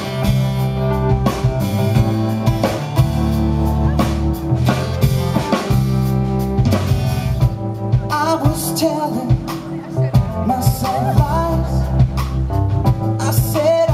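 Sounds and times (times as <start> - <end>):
pop-rock band playing: 0.0 - 13.9
person singing: 7.9 - 13.9.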